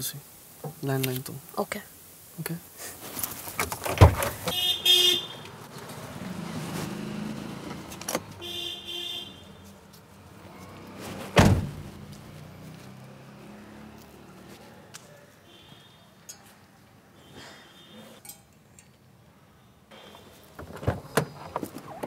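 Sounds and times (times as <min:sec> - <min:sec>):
car door slamming shut: 0:03.8 - 0:04.6, 0:11.3 - 0:12.0.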